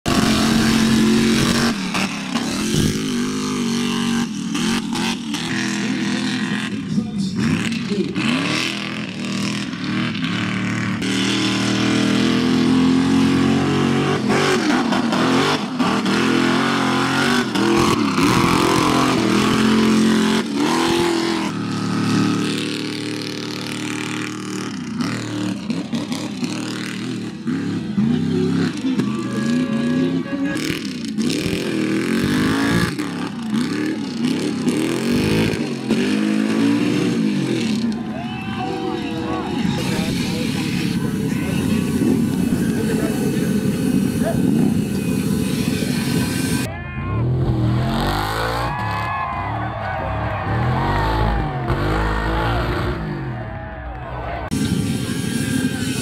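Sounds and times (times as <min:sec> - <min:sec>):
truck engine revving: 0:00.0 - 0:56.0.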